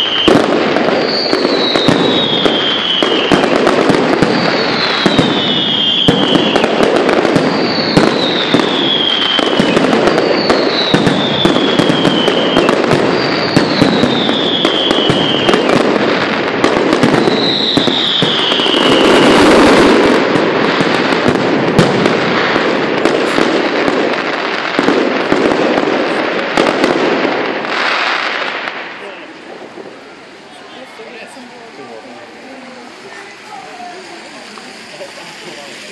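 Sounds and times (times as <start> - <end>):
firework whistle falling in pitch: 0.0 - 3.5, 4.3 - 15.7, 17.1 - 20.0
fireworks crackling and banging: 0.0 - 35.9.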